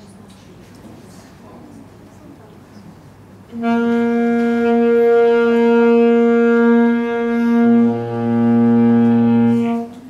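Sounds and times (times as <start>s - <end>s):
saxophone holding a long note: 3.5s - 10.0s.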